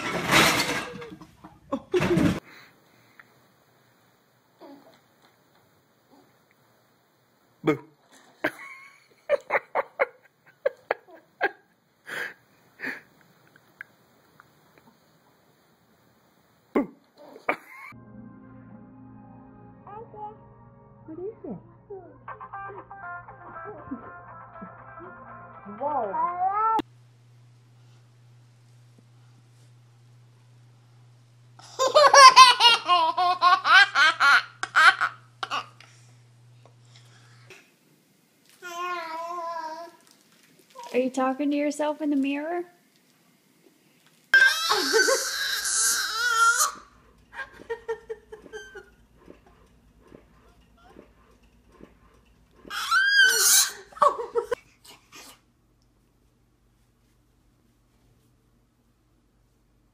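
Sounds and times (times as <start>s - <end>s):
toddler laughing: 31.6s - 35.8s, 44.4s - 46.8s.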